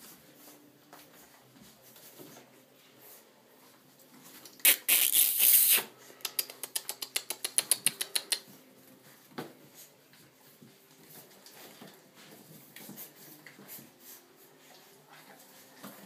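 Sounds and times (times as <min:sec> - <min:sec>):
puppies scuffling rustle: 0:00.0 - 0:04.6, 0:08.4 - 0:16.0
sharp clicks: 0:06.3 - 0:08.4.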